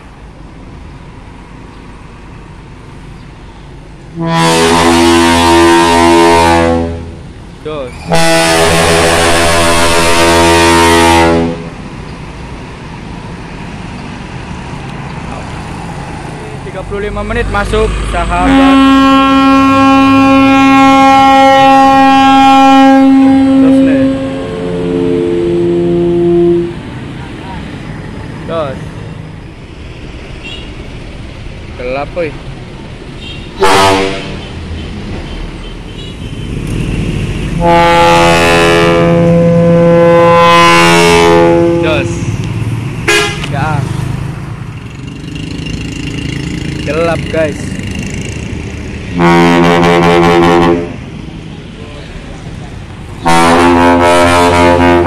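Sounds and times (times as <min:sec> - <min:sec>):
bus engine and road noise: 0:00.0 - 0:55.0
traffic noise: 0:00.0 - 0:55.0
ship horn blast: 0:04.1 - 0:07.3, 0:08.0 - 0:11.8, 0:18.2 - 0:26.9, 0:33.2 - 0:34.6, 0:37.4 - 0:43.6, 0:49.1 - 0:51.1, 0:53.2 - 0:55.0.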